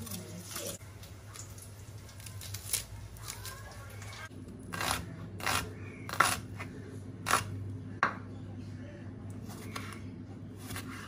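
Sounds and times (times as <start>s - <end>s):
knife cutting onion on board: 4.7s - 7.6s.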